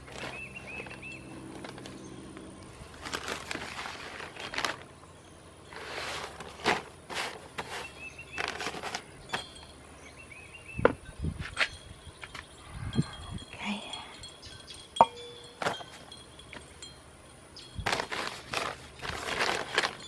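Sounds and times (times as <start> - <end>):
plastic sheeting crinkling: 0.0 - 1.0, 2.8 - 4.9, 5.7 - 9.1, 17.8 - 20.0.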